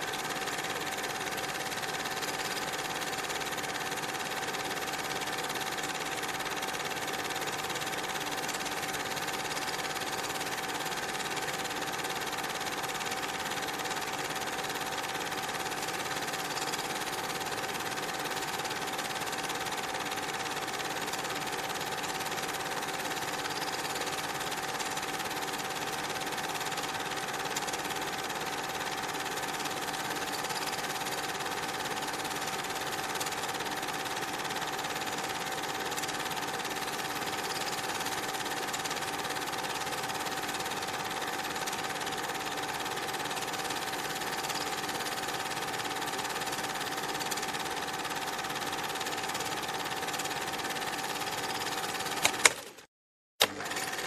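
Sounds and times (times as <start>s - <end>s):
mechanical whirring with high tone: 37.0s - 38.4s.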